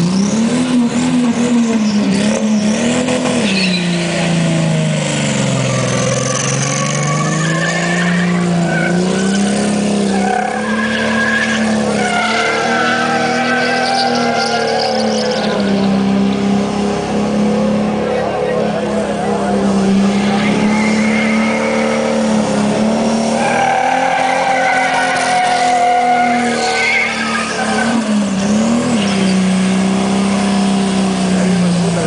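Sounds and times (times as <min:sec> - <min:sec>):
engine revving high: 0:00.0 - 0:32.0
tyres squealing and skidding: 0:00.0 - 0:32.0.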